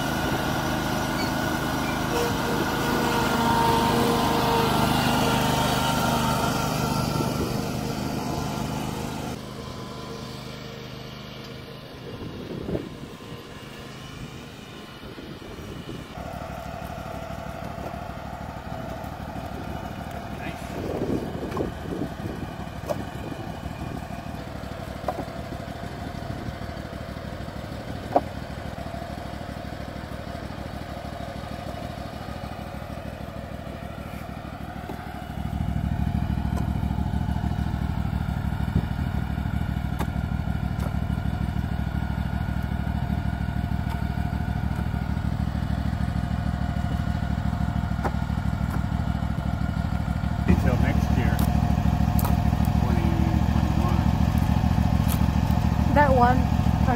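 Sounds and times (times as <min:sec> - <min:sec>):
mower engine idling: 0:00.0 - 0:56.9.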